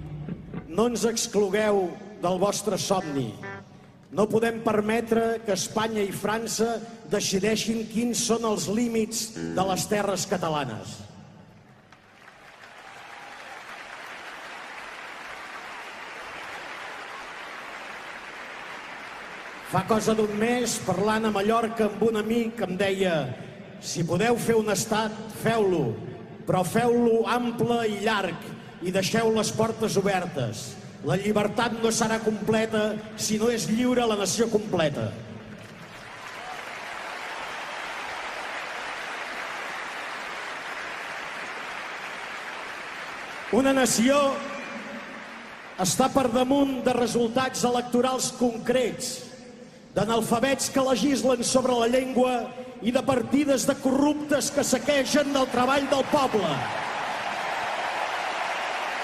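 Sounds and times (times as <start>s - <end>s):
crowd applauding: 11.6s - 21.0s, 35.4s - 46.8s, 55.0s - 59.0s.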